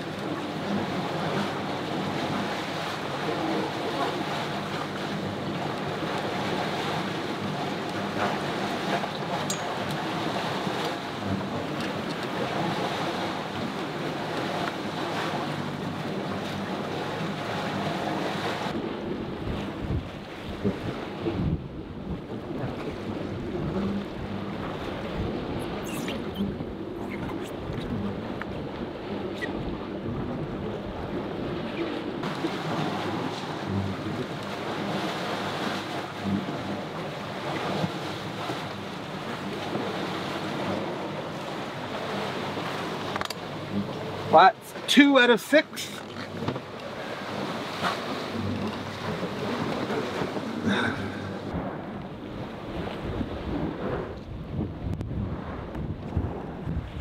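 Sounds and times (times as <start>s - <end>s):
waves washing against boat: 0.0s - 57.0s
wind buffeting microphone: 18.3s - 44.3s, 46.0s - 57.0s
engine drone: 32.2s - 44.3s.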